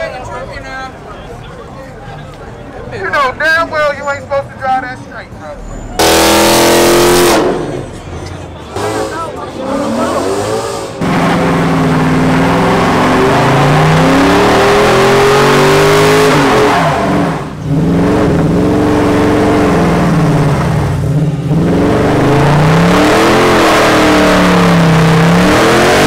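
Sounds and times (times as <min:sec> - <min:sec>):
car engine revving high: 0:06.0 - 0:08.0, 0:08.7 - 0:26.0.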